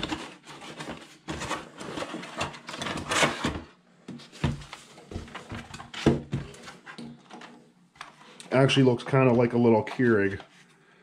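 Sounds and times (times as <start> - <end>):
cardboard box scraping and rustling: 0.0 - 3.7.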